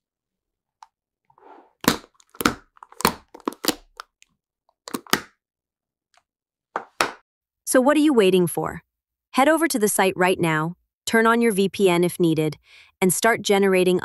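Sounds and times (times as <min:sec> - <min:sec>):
plastic lid cracks and clicks: 0:01.8 - 0:04.1, 0:04.9 - 0:05.3.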